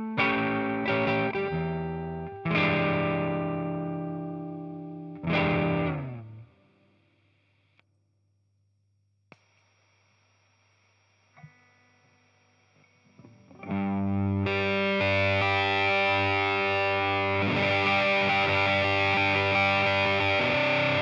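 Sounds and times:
distorted electric guitar chords: 0:00.0 - 0:06.5, 0:13.2 - 0:21.0.

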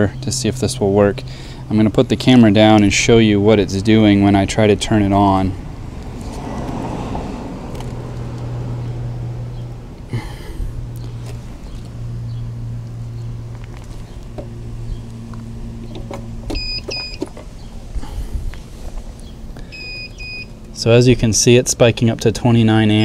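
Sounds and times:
inverter electrical hum: 0:00.0 - 0:06.2, 0:08.4 - 0:23.0
electronic beep: 0:16.6 - 0:17.2, 0:19.7 - 0:20.5.

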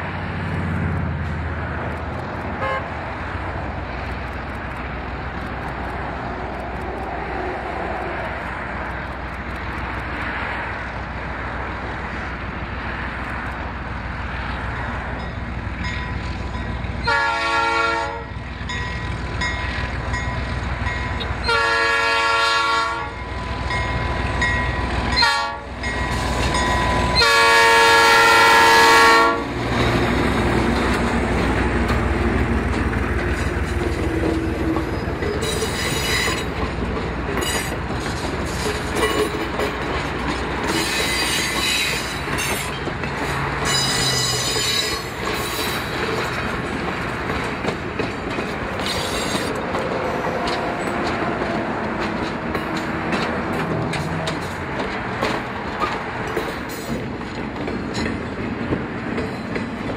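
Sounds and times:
train rumbling past: 0:00.0 - 0:59.9
locomotive air horn blasts: 0:02.6 - 0:03.0, 0:17.0 - 0:18.4, 0:21.4 - 0:23.3, 0:25.2 - 0:25.8, 0:26.8 - 0:29.6.

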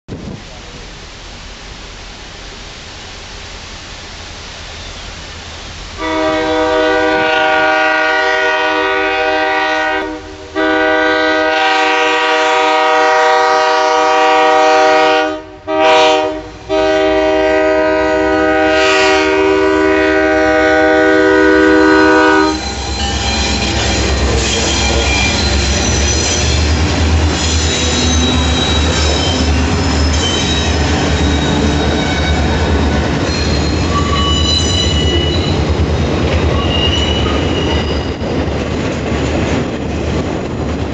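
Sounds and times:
locomotive air horn blasts: 0:06.0 - 0:25.1
high wheel squeal: 0:21.7 - 0:38.5.

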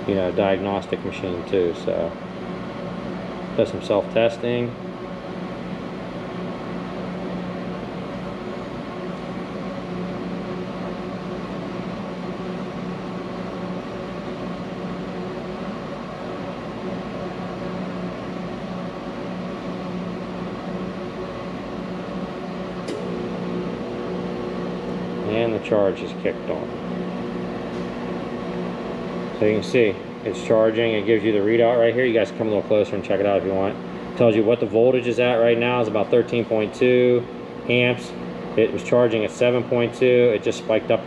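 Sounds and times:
battery charger humming: 0:22.7 - 0:25.8.

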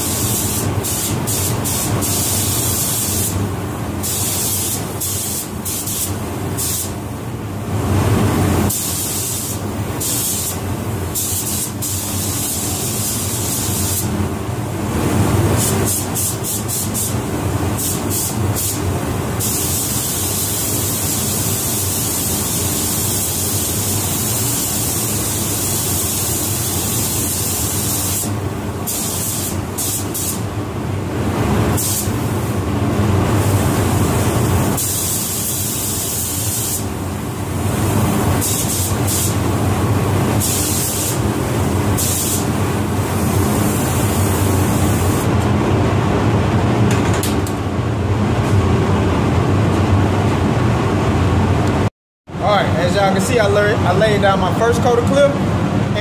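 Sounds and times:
spray gun hissing: 0:00.0 - 0:03.4, 0:04.0 - 0:07.0, 0:08.7 - 0:14.1, 0:15.6 - 0:17.2, 0:17.8 - 0:18.8, 0:19.4 - 0:30.4, 0:31.8 - 0:32.5, 0:34.2 - 0:36.9, 0:38.4 - 0:39.4, 0:40.4 - 0:41.2, 0:42.0 - 0:45.3.

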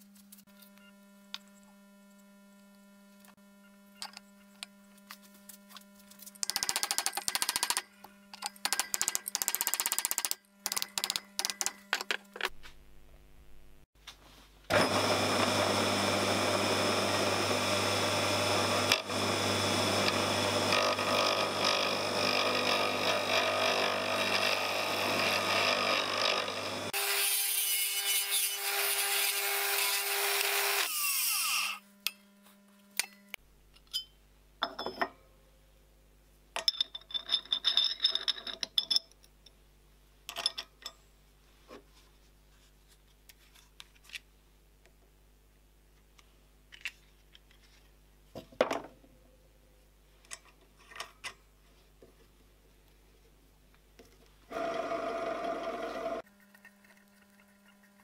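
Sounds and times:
electric motor humming: 0:14.7 - 0:27.0, 0:54.5 - 0:56.2
clicks and rustles of parts: 0:43.2 - 0:44.3, 0:46.1 - 0:47.9, 0:50.2 - 0:51.4.

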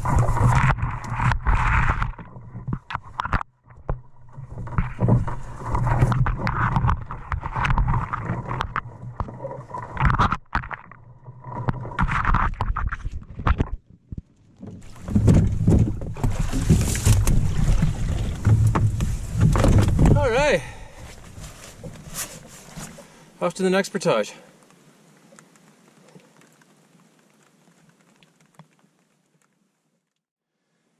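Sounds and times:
knocks and rustles: 0:00.0 - 0:20.2
branches scraping against canoe: 0:00.0 - 0:23.4.

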